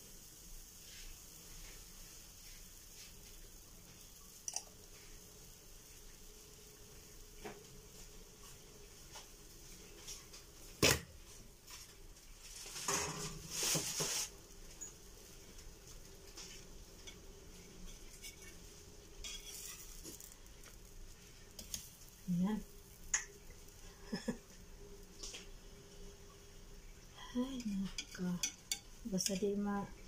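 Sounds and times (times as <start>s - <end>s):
metal spatula scraping pan: 17.6s - 20.4s.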